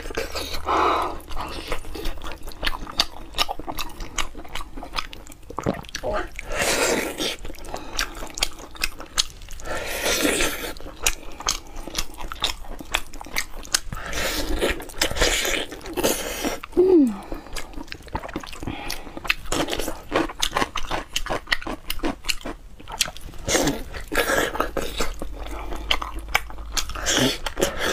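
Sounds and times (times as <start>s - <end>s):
person chewing meat: 0.0s - 27.9s
wet mouth sounds: 1.6s - 9.4s
person humming: 16.8s - 17.3s.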